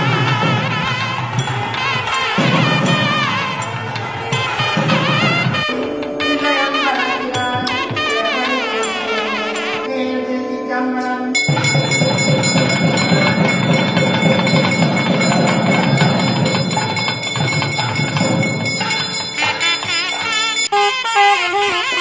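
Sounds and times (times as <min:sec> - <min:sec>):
temple bells clanging: 0:00.0 - 0:09.9, 0:11.2 - 0:22.0
held musical tones: 0:01.4 - 0:22.0
dense din: 0:11.4 - 0:20.6.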